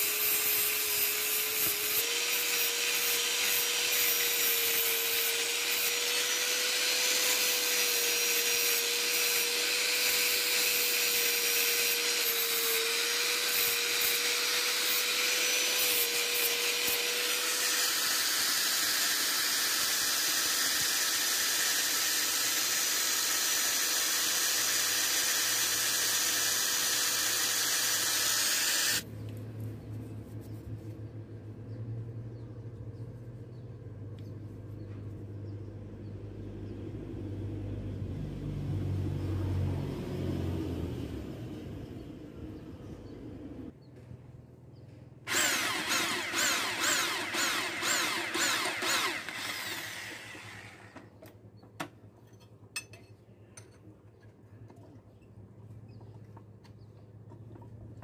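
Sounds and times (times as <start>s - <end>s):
angle grinder grinding metal: 0.0s - 29.0s, 45.3s - 51.1s
motor whine: 45.3s - 51.1s.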